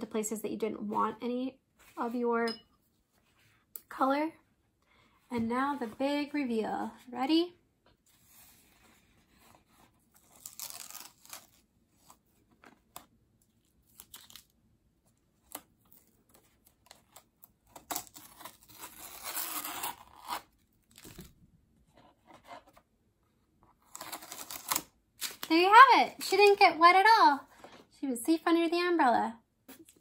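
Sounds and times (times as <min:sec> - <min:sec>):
masking tape peeling: 0:10.2 - 0:11.6, 0:17.7 - 0:20.5, 0:23.8 - 0:25.6.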